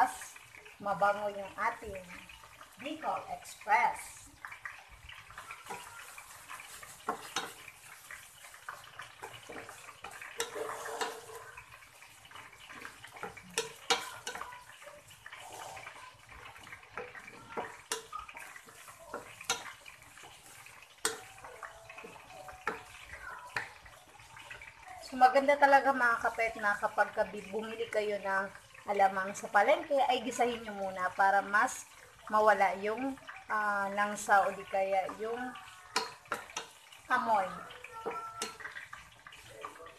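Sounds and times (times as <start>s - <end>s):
food sizzling in a frying pan: 0.0s - 39.9s
wooden spatula scraping a pan: 5.2s - 24.6s.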